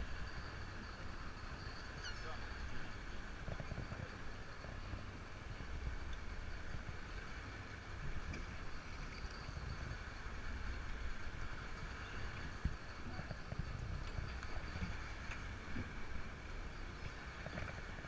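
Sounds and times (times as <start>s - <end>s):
sea and boat hiss: 0.0s - 18.0s
wind rumbling on microphone: 0.0s - 18.0s.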